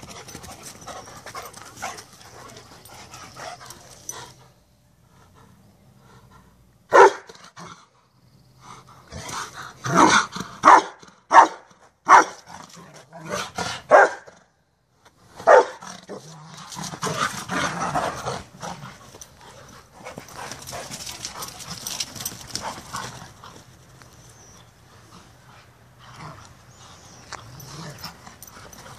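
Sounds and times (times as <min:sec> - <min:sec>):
dog barking: 0:06.9 - 0:07.3, 0:10.6 - 0:12.4, 0:13.9 - 0:14.3, 0:15.4 - 0:15.8.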